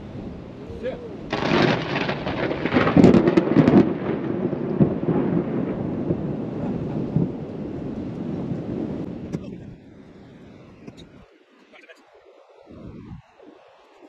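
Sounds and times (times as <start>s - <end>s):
thunder clap and rumble: 0.0s - 10.1s, 12.7s - 13.6s.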